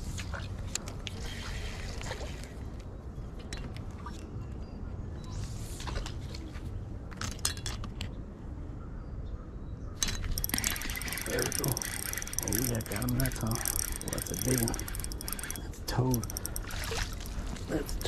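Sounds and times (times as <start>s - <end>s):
fishing reel clicking: 10.0s - 18.0s.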